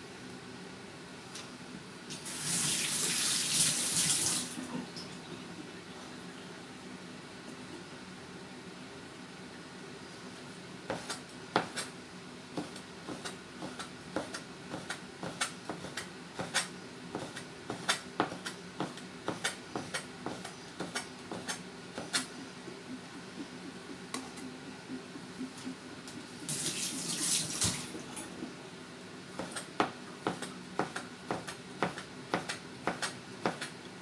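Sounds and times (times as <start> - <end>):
cleaver chopping on cutting board: 10.9 - 11.9, 12.6 - 22.3, 29.4 - 33.7.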